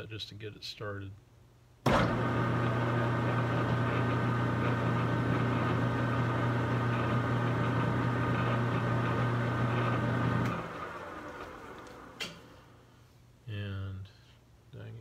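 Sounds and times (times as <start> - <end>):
lathe humming with high whine: 1.9 - 12.3.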